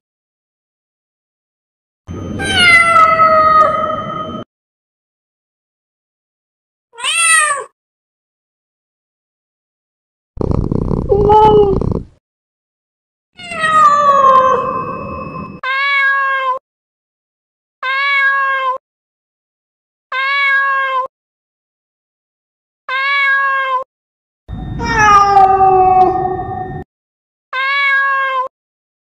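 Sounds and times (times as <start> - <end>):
cat meowing: 2.4 - 4.0, 7.0 - 7.7, 10.4 - 12.0, 13.4 - 14.8, 15.6 - 16.6, 17.8 - 18.8, 20.1 - 21.1, 22.9 - 23.9, 24.8 - 26.8, 27.6 - 28.5.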